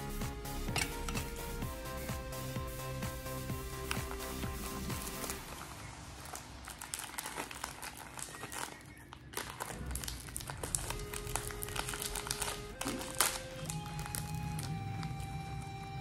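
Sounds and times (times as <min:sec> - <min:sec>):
background music: 0:00.0 - 0:06.7, 0:10.6 - 0:16.0
plastic wrapper crinkling: 0:05.0 - 0:15.7.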